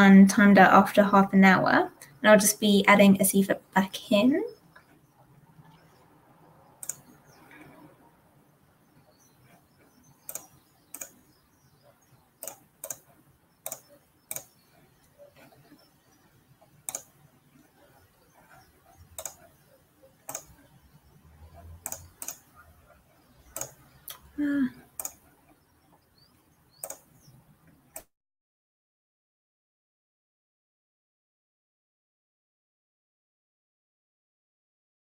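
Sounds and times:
computer keyboard and mouse clicks: 0:06.8 - 0:08.0, 0:09.0 - 0:28.1.

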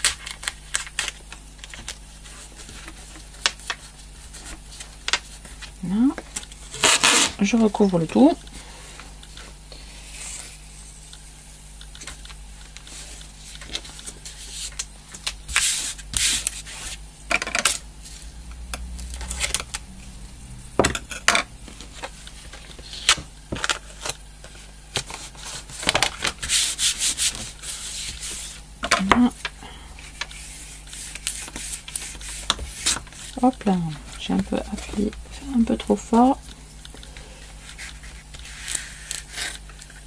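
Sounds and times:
hands rubbing paper tape: 0:25.0 - 0:28.6, 0:30.0 - 0:33.5, 0:37.6 - 0:40.0.

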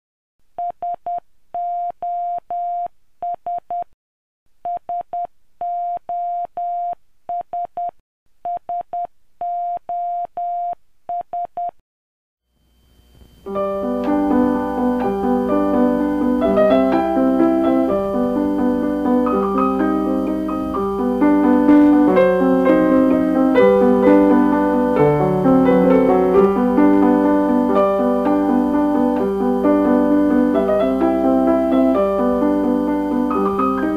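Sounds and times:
piano music: 0:13.5 - 0:33.9.

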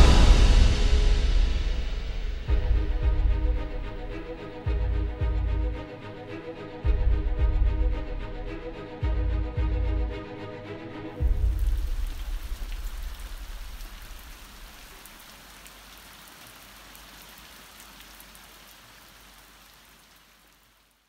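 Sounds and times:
deep rumble: 0:00.0 - 0:05.8
steady rain: 0:00.0 - 0:10.5, 0:11.1 - 0:21.0.

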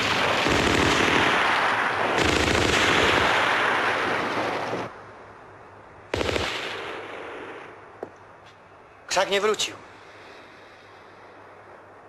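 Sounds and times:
automatic gunfire: 0:00.0 - 0:04.9, 0:06.1 - 0:07.0.

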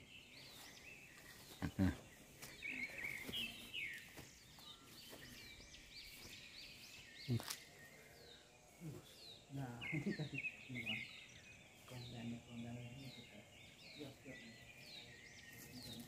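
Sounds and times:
small birds chirping: 0:00.0 - 0:16.0
footsteps scuffing: 0:00.3 - 0:07.7.

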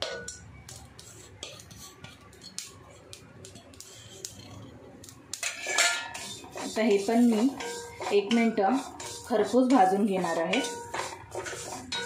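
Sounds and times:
spices dry-roasting with spatula: 0:00.0 - 0:12.0.

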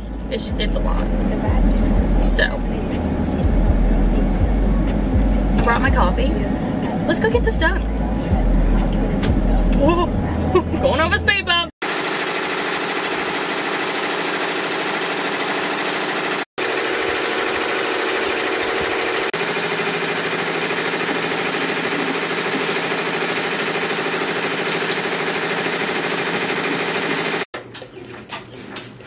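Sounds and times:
embroidery machine stitching: 0:11.8 - 0:27.5.

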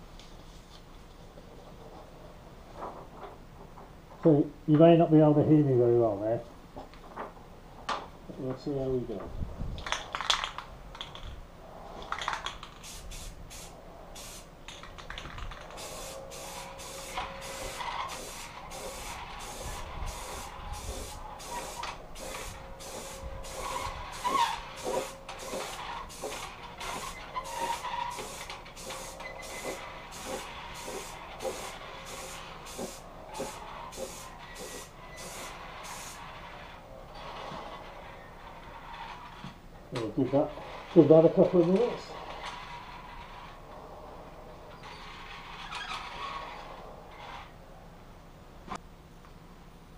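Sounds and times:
aerosol can spraying hiss: 0:12.7 - 0:14.5, 0:15.7 - 0:36.2.

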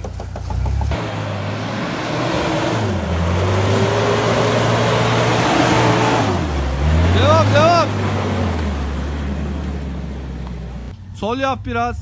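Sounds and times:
off-road vehicle engine under load: 0:00.0 - 0:12.0.

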